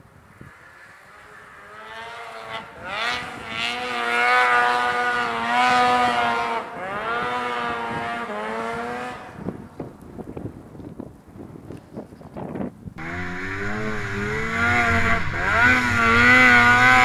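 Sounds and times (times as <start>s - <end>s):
snowmobile engine at high revs: 0.3s - 9.6s, 13.0s - 17.0s.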